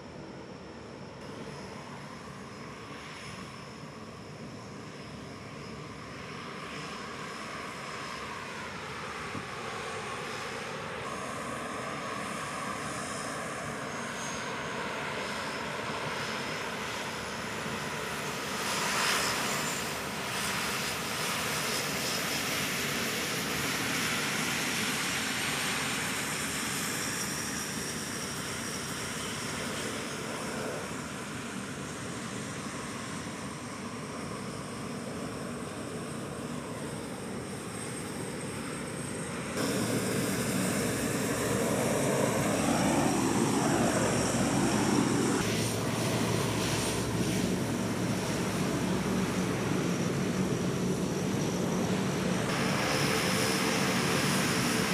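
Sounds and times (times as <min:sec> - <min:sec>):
propeller aircraft taxiing: 0:00.0 - 0:54.9.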